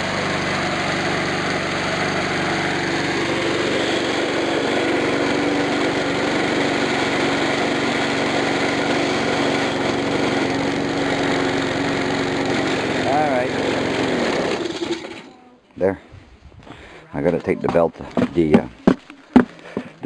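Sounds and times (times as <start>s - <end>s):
push mower engine running: 0.0s - 15.4s.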